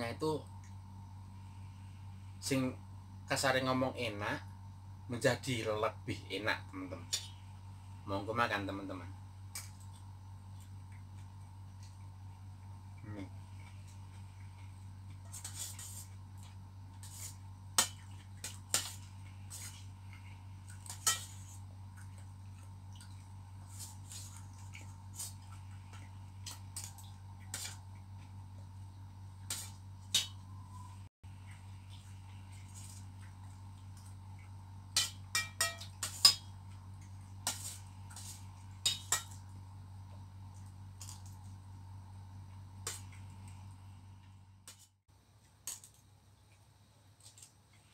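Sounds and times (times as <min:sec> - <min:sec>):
steady low hum: 0:00.0 - 0:47.9
metal spoon clinking on steel bowl: 0:35.0 - 0:36.5.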